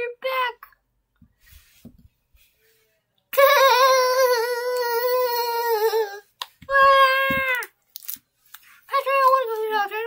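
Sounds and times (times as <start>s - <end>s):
child wailing: 3.4s - 7.7s.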